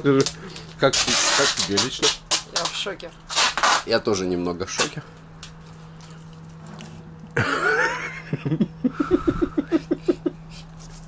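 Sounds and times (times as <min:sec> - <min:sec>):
person laughing: 0:07.4 - 0:10.7.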